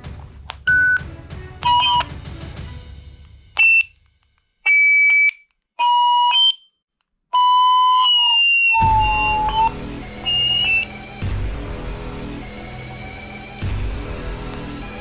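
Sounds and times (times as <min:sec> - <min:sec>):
walkie-talkie beeps and chirps: 0:04.7 - 0:06.7, 0:07.4 - 0:09.7, 0:10.3 - 0:10.9.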